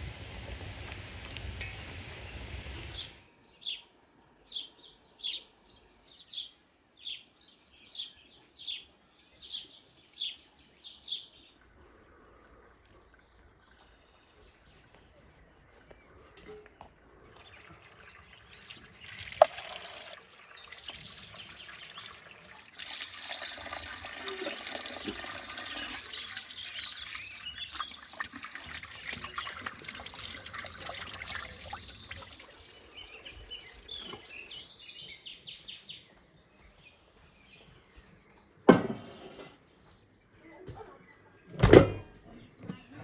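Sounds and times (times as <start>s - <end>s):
birds chirping: 0.3s - 43.0s
tap water splashing into basin: 18.3s - 32.5s.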